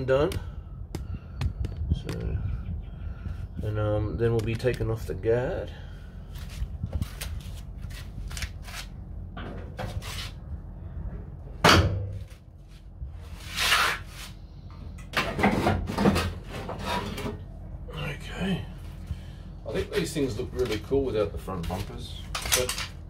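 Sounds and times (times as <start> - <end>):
metal knocks and clunks: 9.4 - 10.0, 11.2 - 12.3
metal scrape: 13.3 - 14.4, 15.4 - 17.4.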